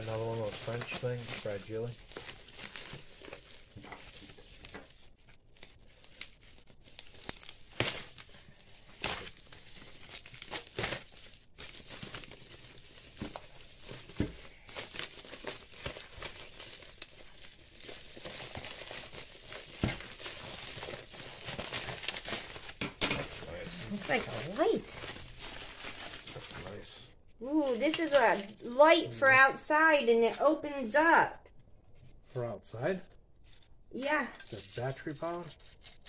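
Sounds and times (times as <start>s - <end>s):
plastic bag rustling: 0.0s - 26.9s
bubble wrap crinkling: 0.0s - 29.5s.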